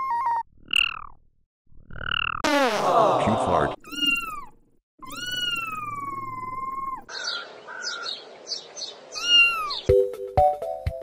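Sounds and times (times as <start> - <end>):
processed kitten meows: 0.0 - 0.4, 3.8 - 7.1, 9.1 - 9.9.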